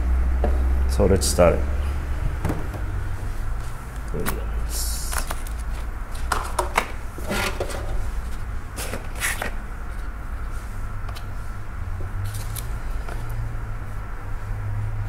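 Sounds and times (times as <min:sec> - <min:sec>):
steady low hum: 0:00.0 - 0:15.0
plastic containers knocking on wood: 0:02.4 - 0:02.9.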